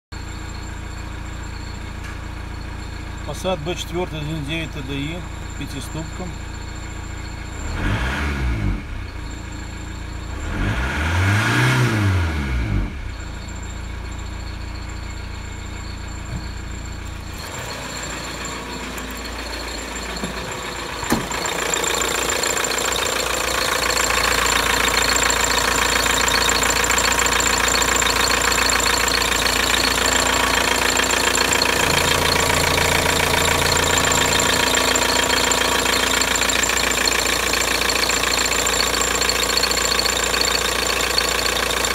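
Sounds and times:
diesel engine idling: 0.1 - 10.7, 12.1 - 41.9
engine throttle blip: 16.0 - 41.9.

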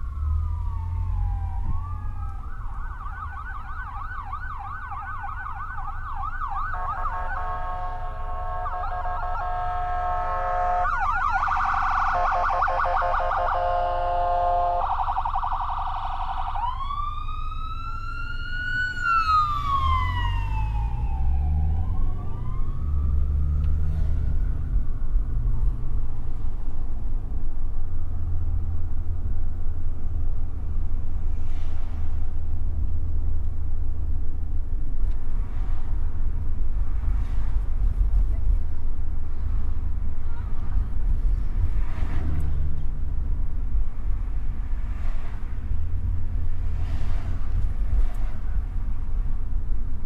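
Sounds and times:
emergency vehicle siren: 0.0 - 26.8
engine and road rumble: 0.0 - 50.0.

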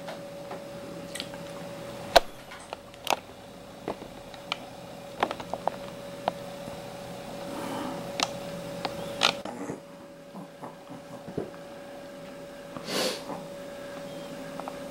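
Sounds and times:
faint steady hum: 0.0 - 14.9
breathy hiss: 6.1 - 9.4, 11.6 - 14.9.

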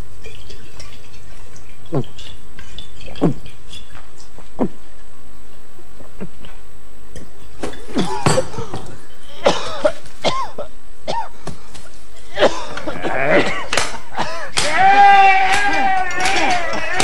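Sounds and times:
man coughing: 7.9 - 11.3, 12.2 - 14.6.

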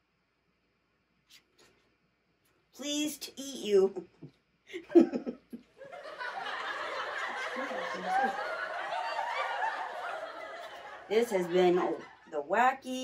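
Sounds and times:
person laughing: 4.7 - 5.7, 7.5 - 8.5.

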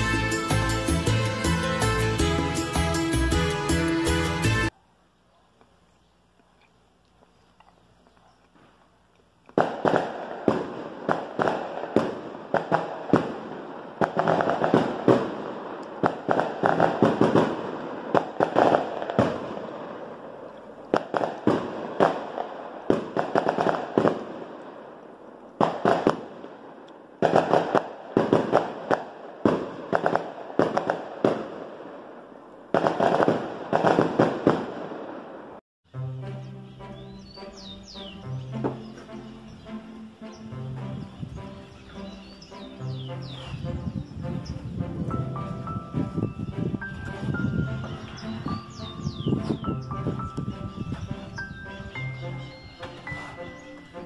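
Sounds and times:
fireworks bangs: 9.6 - 35.6.

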